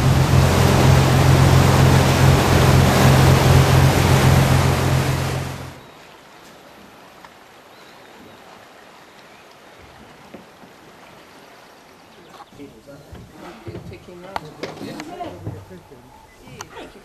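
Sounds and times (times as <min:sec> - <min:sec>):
boat engine drone: 0:00.0 - 0:05.8
wind and water rushing: 0:00.0 - 0:12.1.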